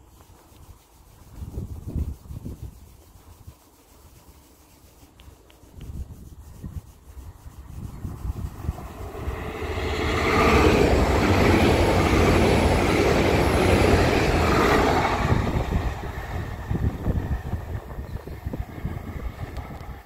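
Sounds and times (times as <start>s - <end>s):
train passing at speed: 7.9s - 20.0s.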